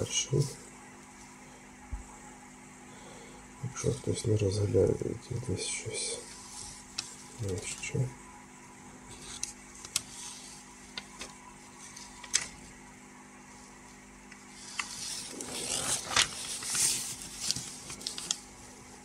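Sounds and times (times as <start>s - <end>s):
paper rustling and crackling: 6.2s - 8.0s, 9.0s - 12.8s, 14.4s - 18.9s.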